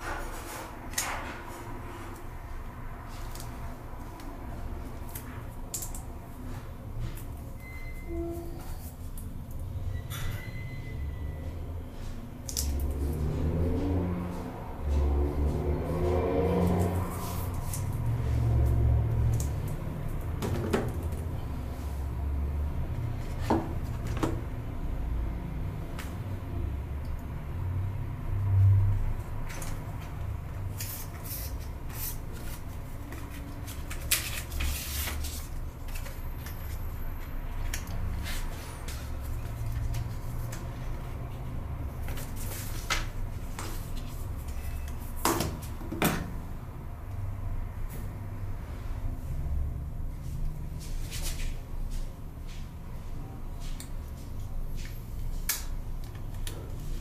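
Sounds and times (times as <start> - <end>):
cardboard and paper rustling: 29.6 - 41.1, 41.8 - 45.8.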